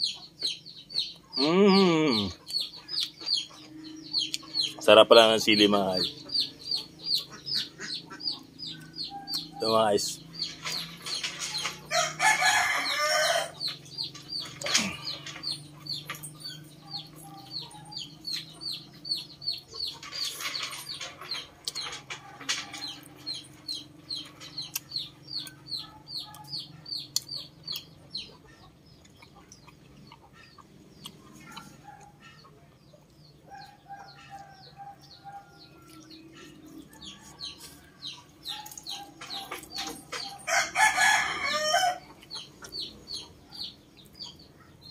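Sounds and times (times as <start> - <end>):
chicks peeping: 0.0 - 44.9
person eating mouth sounds: 1.4 - 3.2
rooster or hen calls: 11.5 - 13.8, 38.8 - 42.1.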